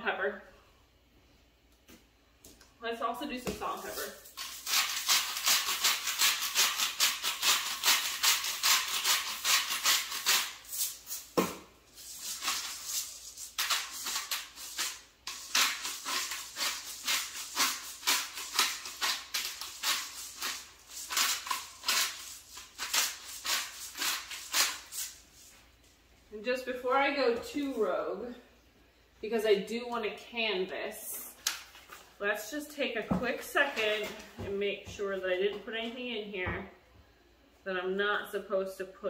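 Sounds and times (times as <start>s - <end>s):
salt and pepper grinders rasping: 3.6s - 25.6s.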